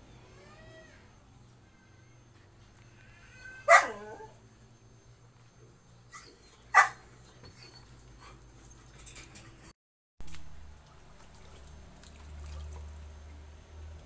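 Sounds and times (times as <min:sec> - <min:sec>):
dog barking: 0:03.7 - 0:04.1, 0:06.7 - 0:07.0.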